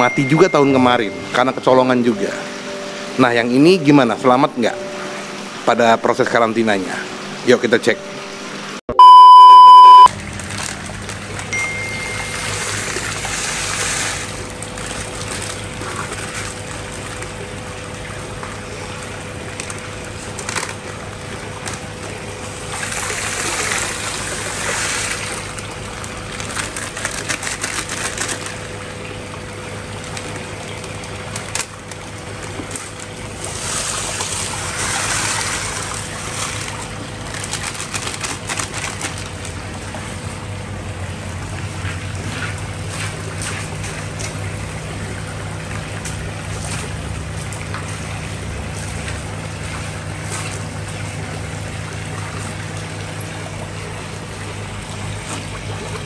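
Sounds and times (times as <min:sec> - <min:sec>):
salt pouring into water: 0:10.2 - 0:17.5, 0:19.0 - 0:28.9, 0:30.0 - 0:39.7
water bubbling from airstone: 0:11.5 - 0:26.5.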